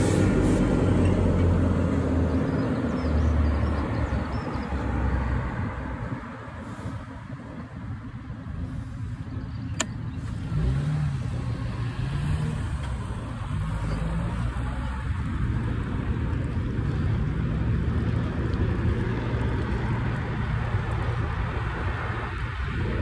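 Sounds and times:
passing road traffic: 0:00.0 - 0:23.0
wind on microphone: 0:02.8 - 0:10.5, 0:14.9 - 0:23.0.

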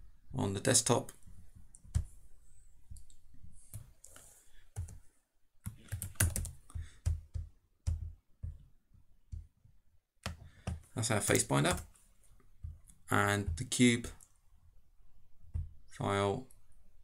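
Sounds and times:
typing on computer keyboard: 0:05.6 - 0:08.6.

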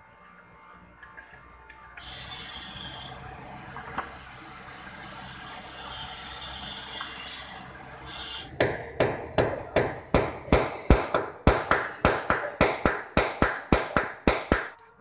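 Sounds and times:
claw hammer striking: 0:08.6 - 0:14.8.

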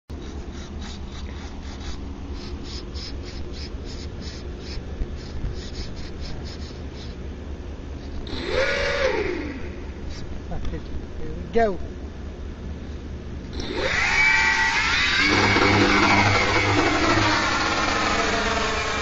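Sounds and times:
electric motors and propellers whirring: 0:00.1 - 0:07.3, 0:07.9 - 0:10.4, 0:13.5 - 0:19.0.

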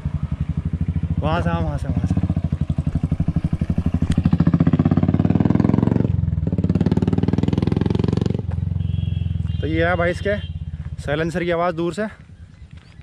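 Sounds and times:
motorcycle engine thumping: 0:00.2 - 0:09.6.

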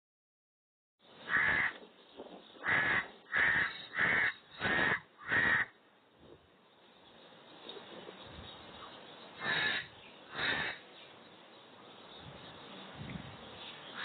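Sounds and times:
raven cawing: 0:01.3 - 0:01.8, 0:02.6 - 0:05.8, 0:09.4 - 0:10.9.

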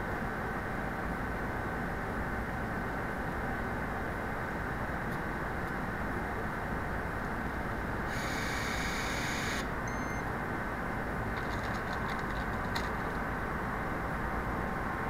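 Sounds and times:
steady factory hum: 0:00.0 - 0:15.0
electric nutrunner running: 0:08.1 - 0:10.0, 0:11.3 - 0:13.4
short electronic beep: 0:08.8 - 0:10.3.

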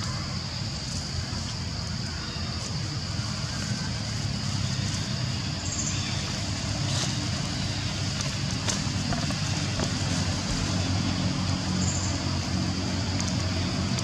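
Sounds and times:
engine low rumble: 0:00.0 - 0:14.0.

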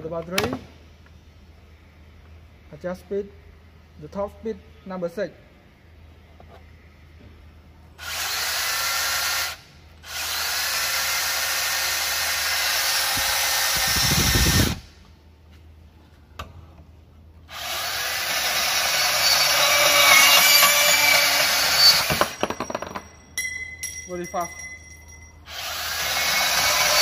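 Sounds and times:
band saw running: 0:17.6 - 0:22.4, 0:25.5 - 0:27.0
saw squealing cutting steel pipe: 0:18.6 - 0:22.4, 0:25.6 - 0:27.0.

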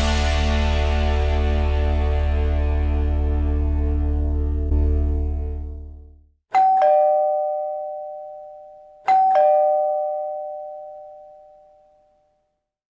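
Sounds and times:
ding-dong doorbell chime: 0:06.5 - 0:12.6.

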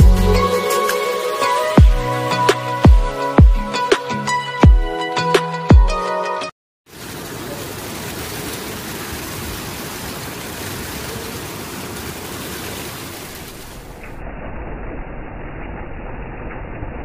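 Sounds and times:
rain falling: 0:06.9 - 0:14.3.

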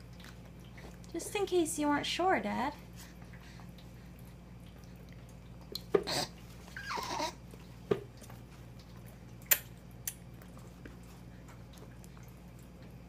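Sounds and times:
baby wet mouth sounds: 0:02.8 - 0:12.9.

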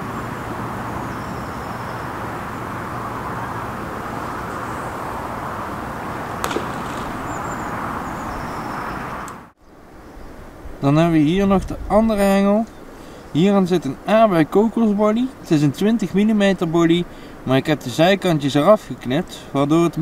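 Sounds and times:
distant road traffic hiss: 0:00.0 - 0:11.4, 0:12.2 - 0:20.0
faint high bird chirps: 0:01.0 - 0:02.2
sharp click: 0:06.4 - 0:07.4.

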